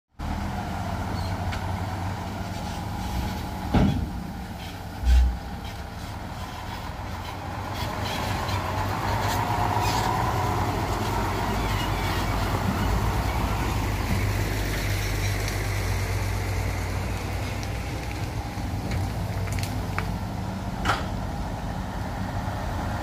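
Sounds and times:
dump truck diesel engine: 0.1 - 23.0
excavator engines: 0.2 - 23.0
deep heavy thud: 3.7 - 4.4.

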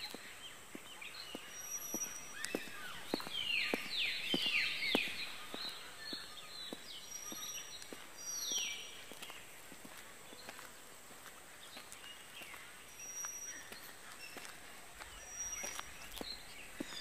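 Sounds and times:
bird calls descending: 0.0 - 9.4
footsteps on stone: 0.0 - 17.0.

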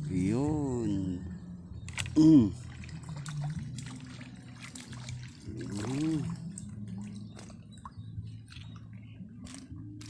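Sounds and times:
fish splashing at water surface: 1.9 - 7.7
small splashes and drips: 1.9 - 10.0.

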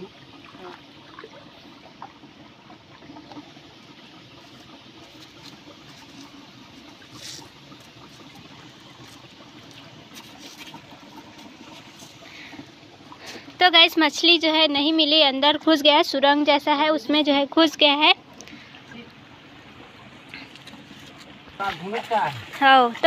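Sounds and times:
water trickling over rocks: 0.0 - 23.0
small splashes and clicks: 18.3 - 19.2.

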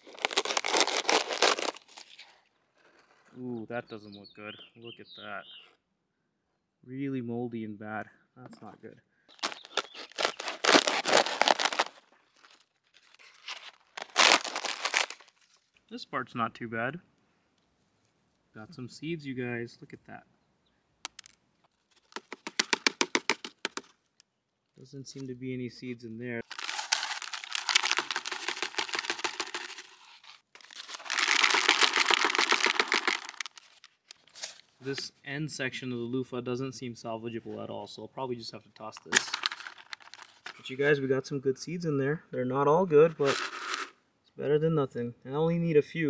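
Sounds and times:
dry gourd crackling and tearing: 0.0 - 3.2, 9.3 - 15.8, 21.1 - 24.0, 26.4 - 34.7, 39.0 - 40.6
seeds dropping into plastic bucket: 9.3 - 12.6, 13.6 - 15.4, 21.0 - 21.4, 22.0 - 24.0, 26.4 - 35.0, 38.9 - 40.6, 43.2 - 43.9.

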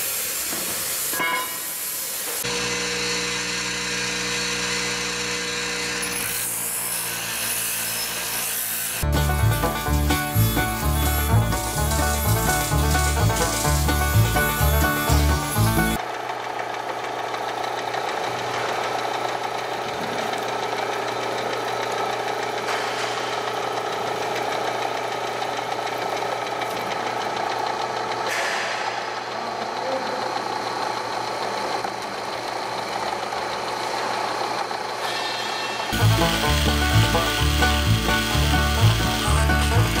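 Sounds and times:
drill press boring into steel: 0.0 - 19.7, 29.0 - 40.0.

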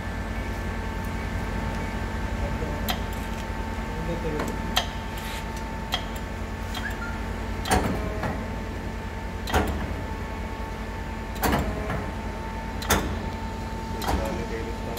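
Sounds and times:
sharp mechanical clunks: 7.6 - 8.4, 9.4 - 10.0, 11.3 - 12.1, 12.8 - 13.3, 14.0 - 14.4.

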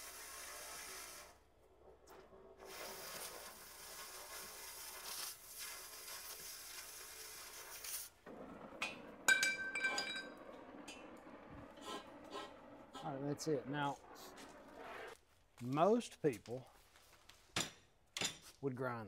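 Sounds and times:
cutting torch hissing: 0.0 - 1.4, 2.6 - 8.2.

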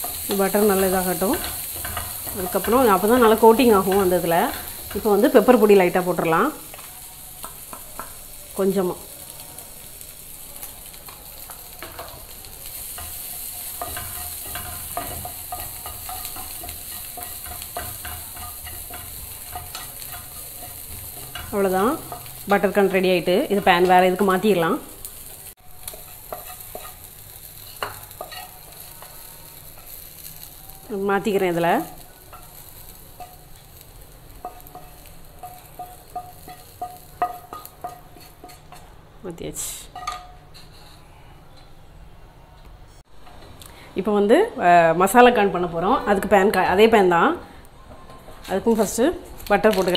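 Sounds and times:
corn sizzling in butter: 0.0 - 38.9, 48.6 - 49.9
spatula scraping a pan: 11.8 - 22.4, 40.5 - 41.2.

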